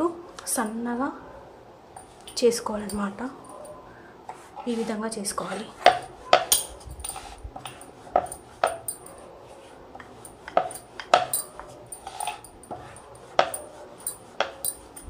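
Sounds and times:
rolling pin rolling dough: 0:04.3 - 0:15.0.

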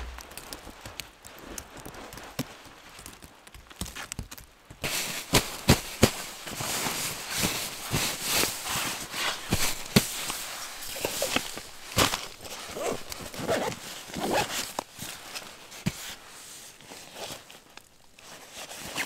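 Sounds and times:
nylon fabric rustling: 0:04.8 - 0:19.0.

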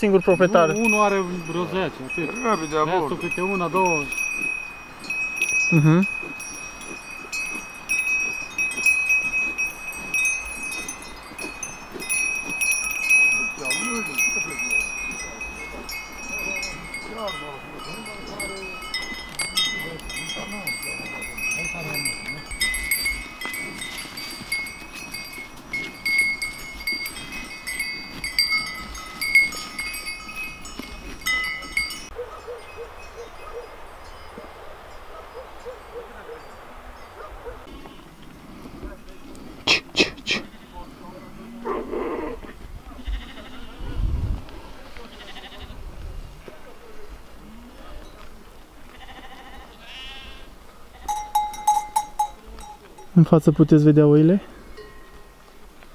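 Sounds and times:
cowbells clanking: 0:00.0 - 0:34.3, 0:50.9 - 0:55.8.

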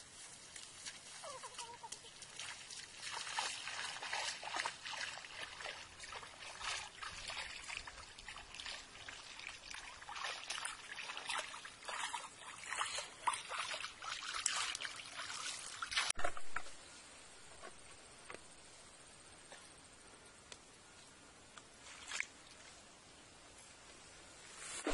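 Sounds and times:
water splashing and sloshing: 0:00.6 - 0:16.8.

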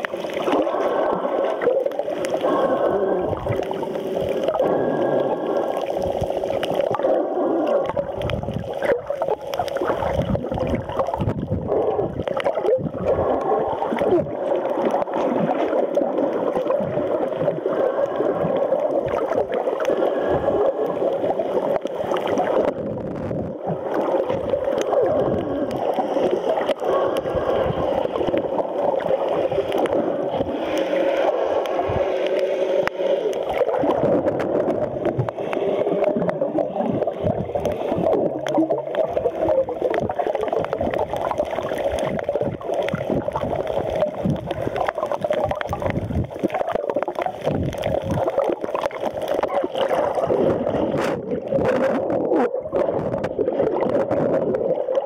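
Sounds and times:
low churning of water underwater: 0:00.0 - 0:55.0.

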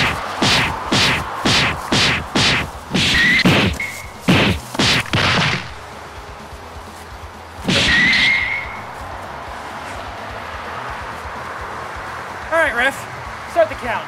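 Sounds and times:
whooshing hits and swishes: 0:00.0 - 0:05.8.

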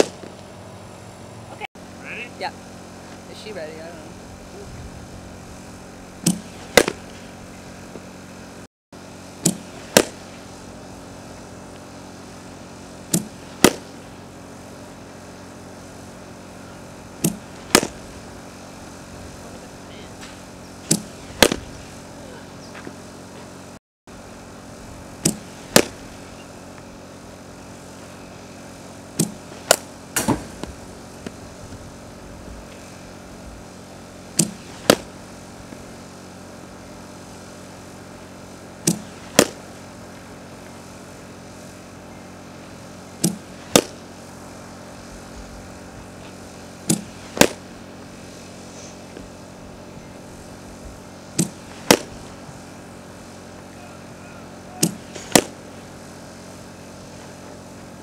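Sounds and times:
bat cracking on ball: 0:00.0 - 0:00.4, 0:06.2 - 0:07.2, 0:09.4 - 0:10.3, 0:13.1 - 0:13.9, 0:17.2 - 0:18.1, 0:20.3 - 0:21.8, 0:25.2 - 0:26.1, 0:29.2 - 0:31.4, 0:34.4 - 0:35.2, 0:38.9 - 0:39.7, 0:43.2 - 0:44.0, 0:46.9 - 0:47.7, 0:51.4 - 0:52.3, 0:54.8 - 0:55.6.

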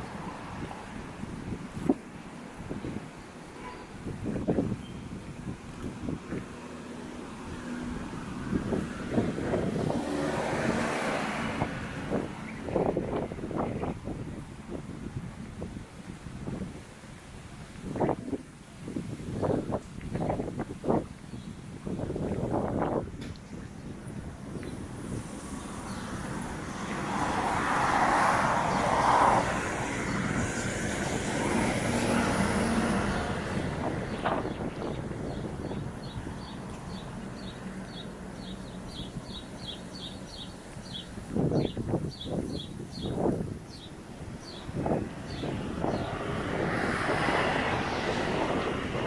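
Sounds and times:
car passing by: 0:06.0 - 0:14.8, 0:24.5 - 0:41.7, 0:42.5 - 0:49.0.

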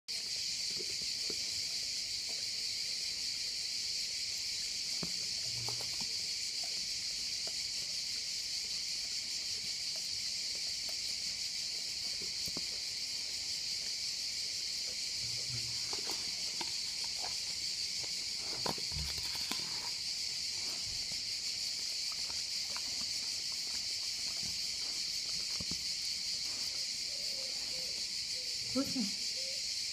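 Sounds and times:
high-pitched insect drone: 0:22.8 - 0:29.9.

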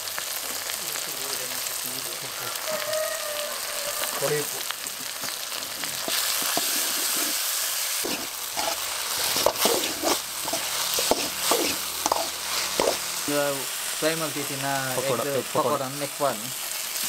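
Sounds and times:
food sizzling in oil: 0:00.0 - 0:17.0
metal ladle scraping pan: 0:06.0 - 0:13.2.

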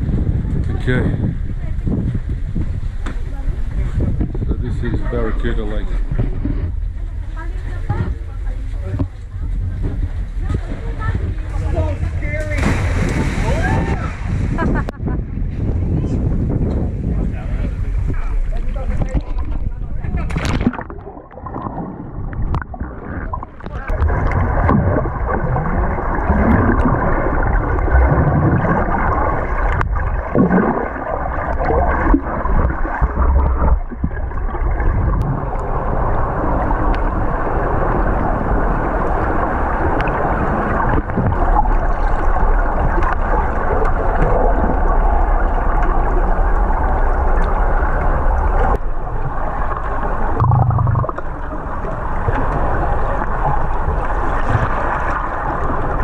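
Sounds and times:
steady low rumble: 0:00.0 - 0:56.0
underwater water gurgling: 0:17.6 - 0:56.0.

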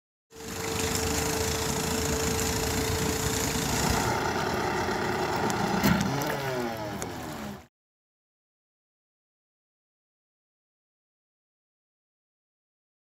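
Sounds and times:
outboard motor running: 0:00.3 - 0:07.7.

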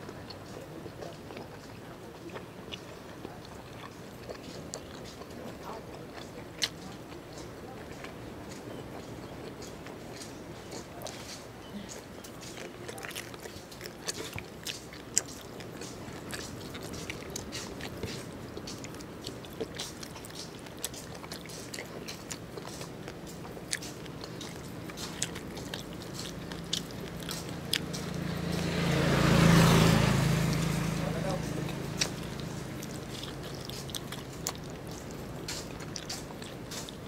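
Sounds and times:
person chewing: 0:00.0 - 0:37.0
vehicle passing: 0:00.0 - 0:37.0
wet mouth clicks and smacks: 0:08.0 - 0:37.0.

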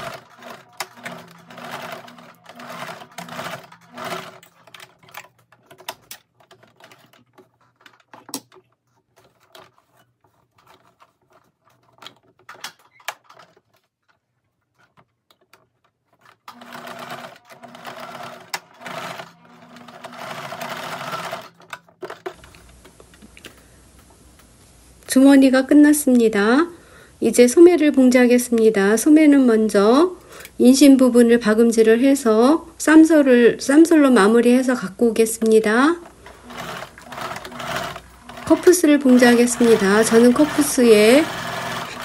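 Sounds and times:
sewing machine stitching: 0:00.0 - 0:13.9, 0:16.1 - 0:22.6, 0:35.5 - 0:42.0
small clicks and handling noises: 0:04.4 - 0:16.6.

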